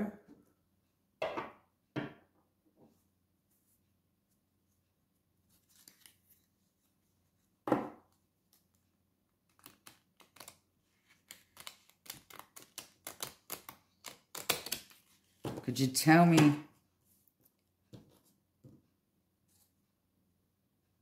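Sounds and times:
cards being shuffled: 5.4 - 6.9, 8.1 - 16.6.

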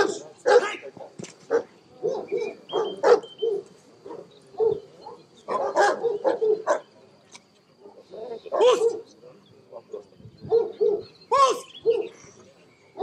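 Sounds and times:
dog barking: 0.0 - 6.9, 7.8 - 9.1, 9.8 - 11.1, 11.8 - 12.2.

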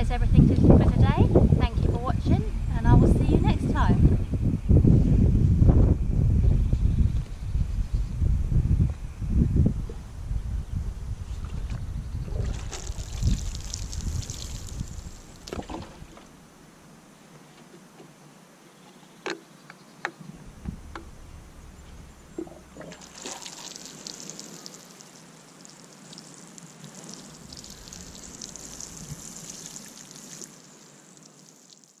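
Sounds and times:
water showering from watering can: 12.6 - 15.8, 22.8 - 32.0.

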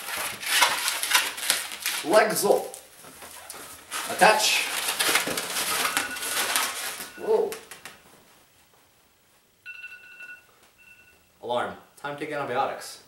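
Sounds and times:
balloons squeaking and rubbing: 0.0 - 7.9
phone alarm beeping: 5.7 - 7.5, 9.6 - 11.4.

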